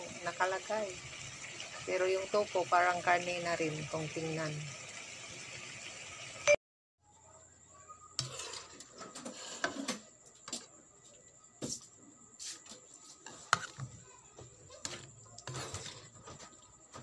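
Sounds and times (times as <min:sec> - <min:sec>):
spatula scraping a wok: 0:08.2 - 0:10.0, 0:12.4 - 0:14.0, 0:14.6 - 0:17.0.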